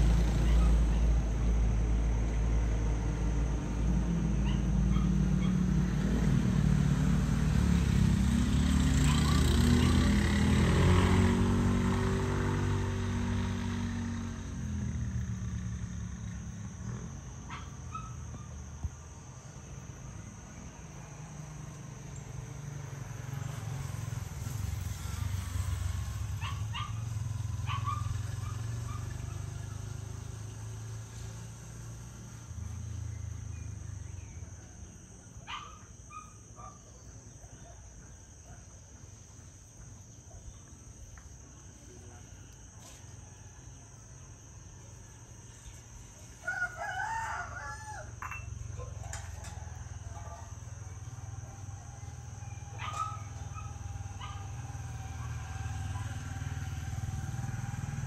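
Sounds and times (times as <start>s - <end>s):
rooster crowing: 46.4s - 50.6s.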